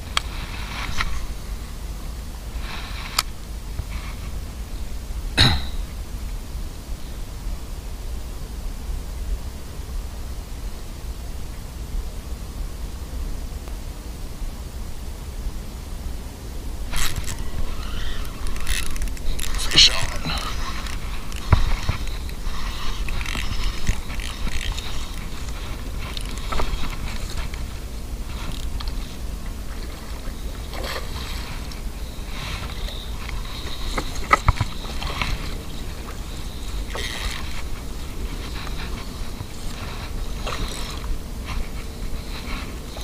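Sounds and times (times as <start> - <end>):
wind rumble on microphone: 0.0 - 43.0
fishing reel clicks and knocks: 17.0 - 25.4, 36.9 - 37.6.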